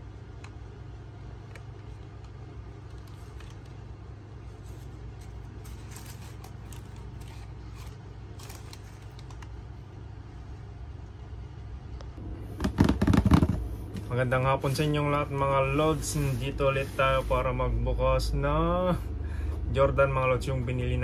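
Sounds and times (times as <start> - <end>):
steady low hum: 0.0 - 21.0
tissue paper and cardboard rustling: 4.4 - 9.3.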